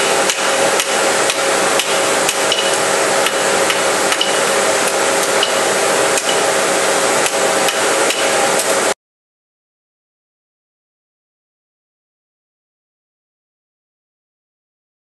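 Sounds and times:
workshop machinery din: 0:00.0 - 0:09.0.

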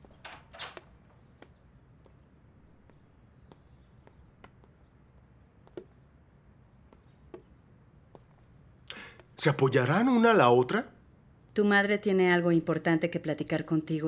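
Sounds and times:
soft taps: 0:05.6 - 0:06.0, 0:06.9 - 0:07.5.

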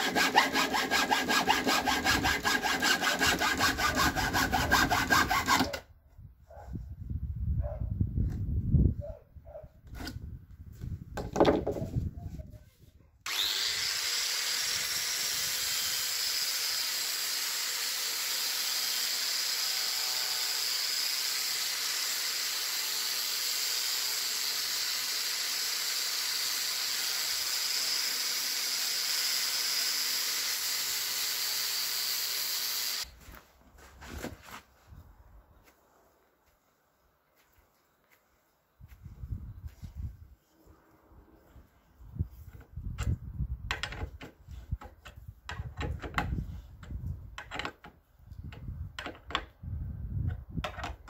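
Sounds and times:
hacksaw sawing wood: 0:00.0 - 0:05.8, 0:13.3 - 0:33.1
angle grinder whining: 0:13.3 - 0:33.1.

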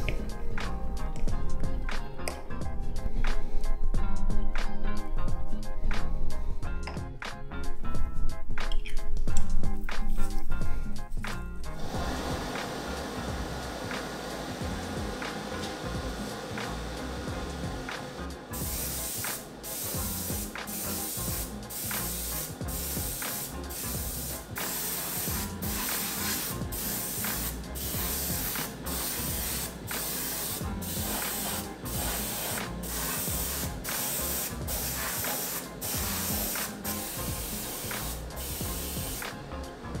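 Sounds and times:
airbrush hissing in bursts: 0:11.8 - 0:39.4.

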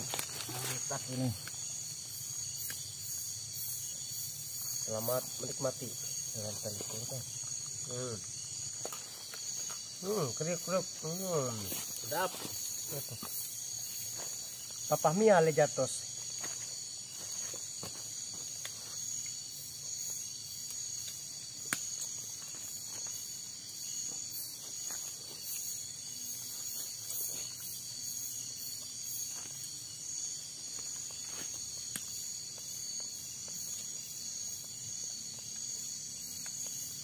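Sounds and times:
crickets and insects trilling: 0:00.0 - 0:37.0
pulsing insect call: 0:00.0 - 0:37.0.

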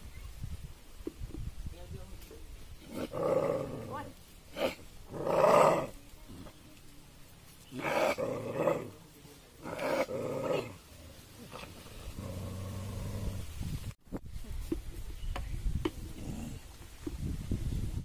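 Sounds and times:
dogs growling and snarling: 0:02.8 - 0:06.5, 0:07.7 - 0:09.0, 0:09.6 - 0:13.5, 0:16.0 - 0:16.7.

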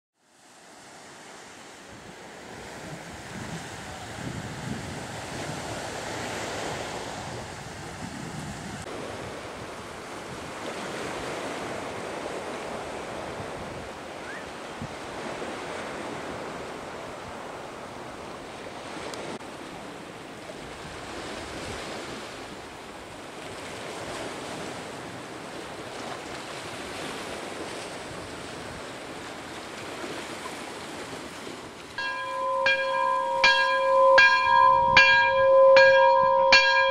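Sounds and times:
wind on microphone: 0:01.9 - 0:19.4, 0:32.0 - 0:36.9.

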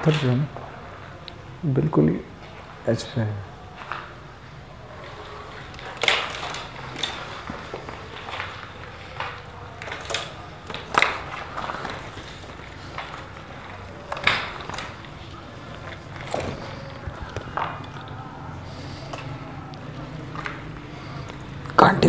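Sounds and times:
footsteps crunching on rubble: 0:04.9 - 0:21.8.

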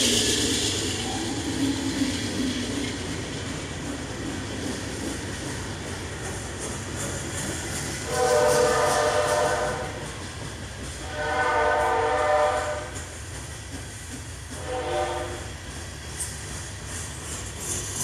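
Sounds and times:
locomotive air horn blasts: 0:08.0 - 0:10.0, 0:11.0 - 0:13.0, 0:14.6 - 0:15.5.

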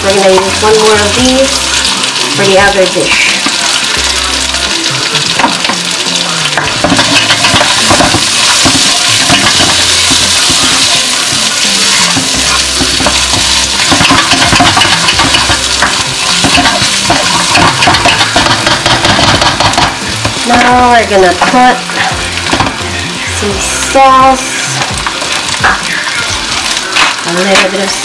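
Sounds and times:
food sizzling in oil: 0:00.0 - 0:28.0
spatula scraping a wok: 0:06.8 - 0:24.0.

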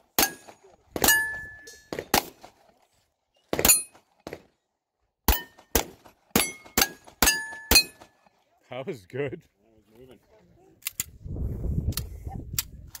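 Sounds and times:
steel plate target ringing: 0:00.2 - 0:01.9, 0:06.4 - 0:08.1.

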